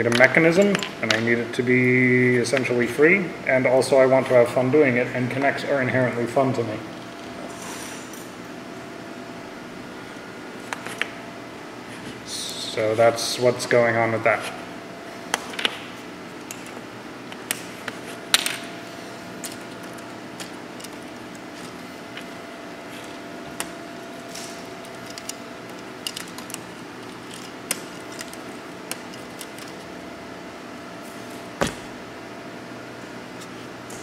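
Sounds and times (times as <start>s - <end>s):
faint steady hum: 0.0s - 34.0s
plastic pieces clicking: 24.9s - 29.8s.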